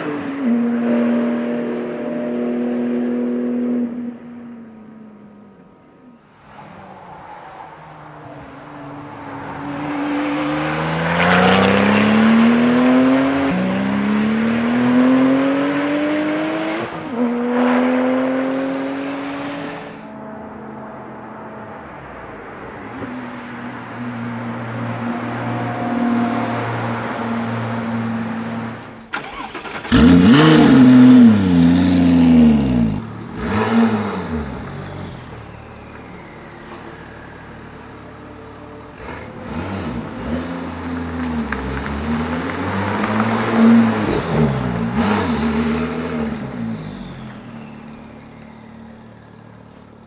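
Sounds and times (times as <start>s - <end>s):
car driving off: 0.0s - 50.0s
sports car engine revving: 9.2s - 20.1s, 27.0s - 35.3s, 38.9s - 47.7s.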